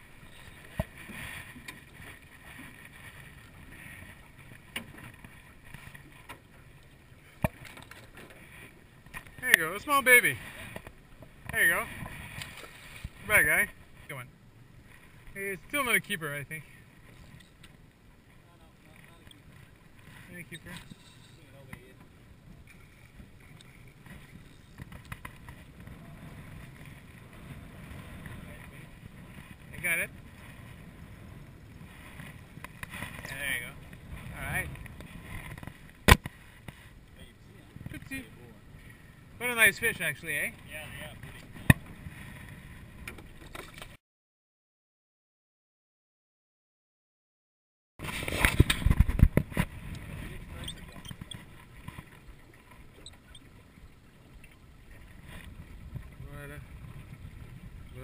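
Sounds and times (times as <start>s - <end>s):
water lapping around boat: 0.0s - 44.0s, 48.0s - 58.0s
wind: 0.0s - 44.0s, 48.0s - 58.0s
sharp knocks on boat: 7.4s - 8.3s, 41.6s - 42.0s
wind buffeting microphone: 55.0s - 58.0s.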